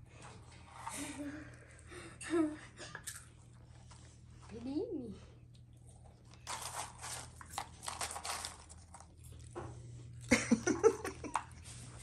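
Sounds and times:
crackers crunching and rustling: 5.5s - 12.0s.

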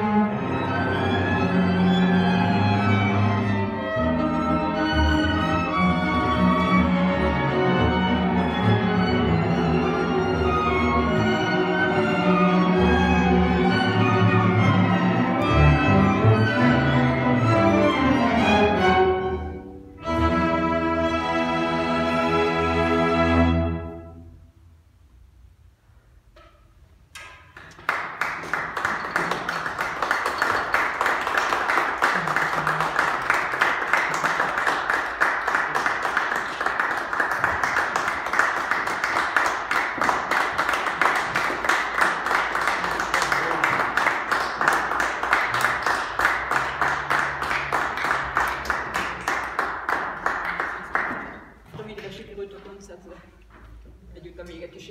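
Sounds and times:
audience applause: 27.6s - 51.5s.

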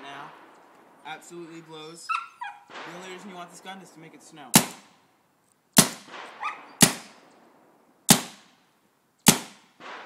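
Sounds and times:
paintball gun shots: 4.5s - 4.9s, 5.8s - 7.2s, 8.1s - 8.6s, 9.2s - 10.0s.

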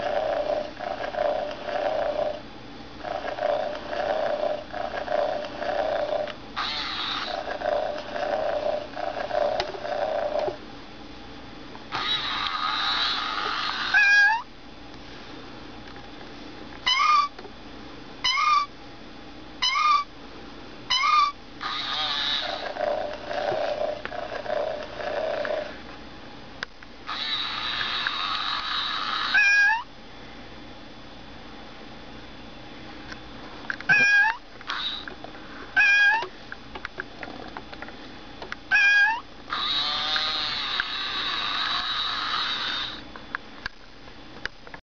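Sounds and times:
toy kitten purring: 0.0s - 2.4s, 3.0s - 10.6s, 11.9s - 14.4s, 20.9s - 25.8s, 27.1s - 29.8s, 33.9s - 35.1s, 38.7s - 43.0s
toy kitten meowing: 12.0s - 14.4s, 16.9s - 17.3s, 18.2s - 18.7s, 19.6s - 20.0s, 20.9s - 22.6s, 27.1s - 29.8s, 33.9s - 35.0s, 35.8s - 36.3s, 38.7s - 43.0s.

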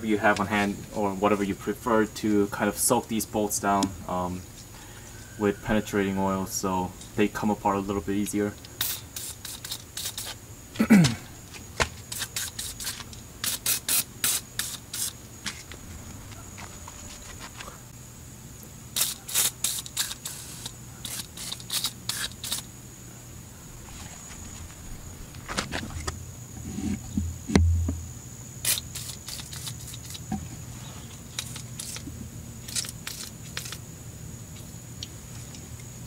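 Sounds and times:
faint high whine: 0.0s - 8.7s, 22.3s - 36.0s
dull thump: 24.4s - 28.1s.

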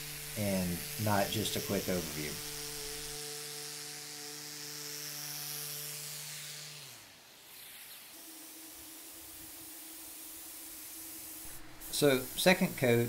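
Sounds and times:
steady hum: 0.0s - 4.4s
orbital sander humming: 0.0s - 13.0s.

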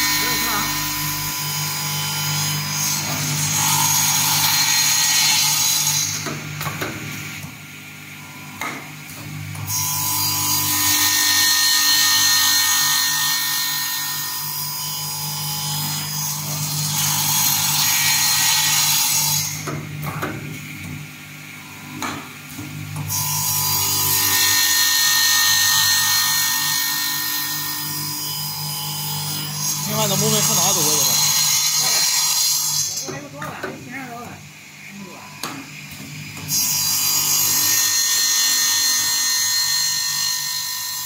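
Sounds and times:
electric motor humming: 0.0s - 5.0s, 23.2s - 32.1s
saw blade cutting wood: 0.0s - 6.9s, 23.1s - 33.6s.

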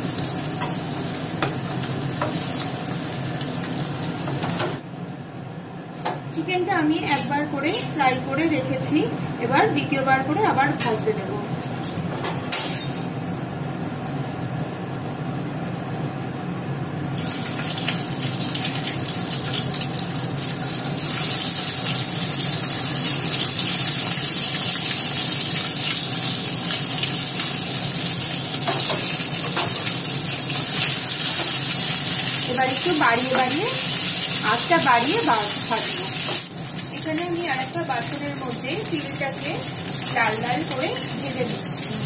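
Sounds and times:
chicken sizzling in hot oil: 0.0s - 4.8s, 17.2s - 42.0s.

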